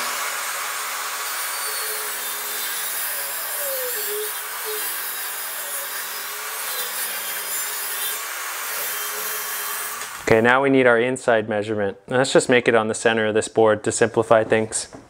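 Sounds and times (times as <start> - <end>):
table saw ripping wood: 0.0 - 10.4.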